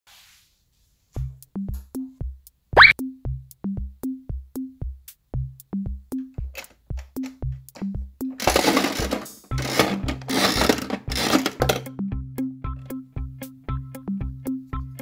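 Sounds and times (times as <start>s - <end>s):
drum machine beat: 1.3s - 8.3s.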